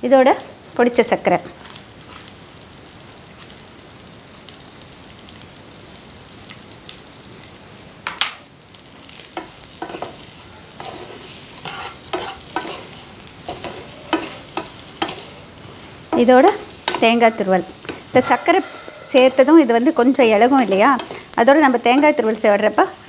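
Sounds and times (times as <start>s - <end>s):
food sizzling in a pan: 0.0s - 23.0s
wooden spatula scraping a pan: 9.4s - 22.4s.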